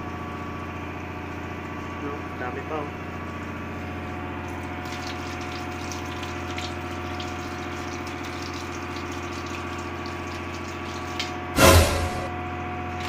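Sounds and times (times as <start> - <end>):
low machinery hum: 0.0 - 13.0
tap water splashing into a sink: 4.4 - 11.5.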